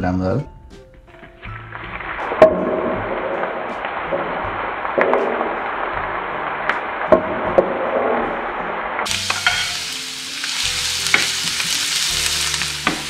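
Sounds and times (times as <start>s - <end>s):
onion sizzling in hot oil: 9.0s - 13.0s.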